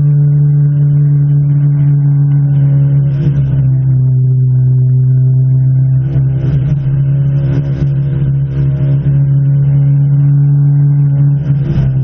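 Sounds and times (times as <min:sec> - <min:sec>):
car engine cruising: 0:00.0 - 0:12.0.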